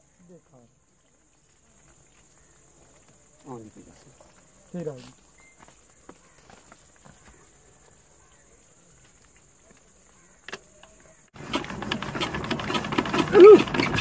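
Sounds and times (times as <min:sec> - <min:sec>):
diesel engine knocking: 0:11.4 - 0:14.0.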